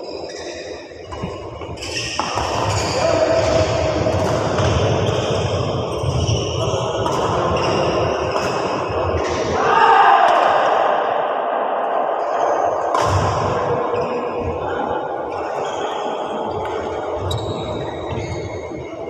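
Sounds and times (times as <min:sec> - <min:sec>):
rackets striking shuttlecock: 0:08.3 - 0:08.8, 0:12.9 - 0:13.6.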